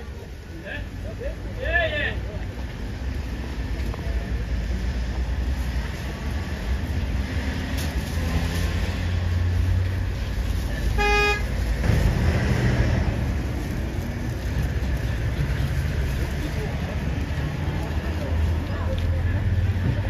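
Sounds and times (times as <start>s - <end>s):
crowd murmur: 0.0s - 7.4s, 13.0s - 20.0s
short horn toot: 11.0s - 11.5s.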